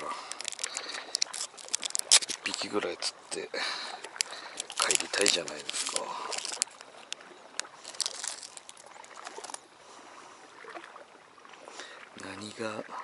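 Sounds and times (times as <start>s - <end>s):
hands handling small packet: 0.0s - 2.7s, 4.1s - 6.9s, 7.8s - 9.6s.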